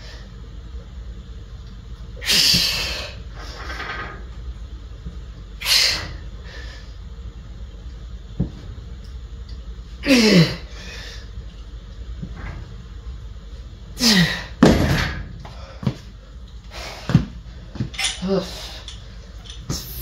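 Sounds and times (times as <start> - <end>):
person grunting with effort: 10.0 - 10.7, 14.0 - 14.6.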